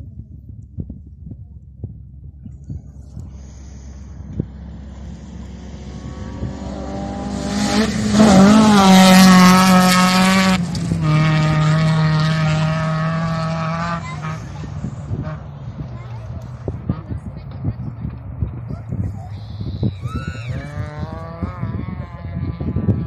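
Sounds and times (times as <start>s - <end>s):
rally car engine passing: 3.3s - 19.0s, 20.0s - 23.0s.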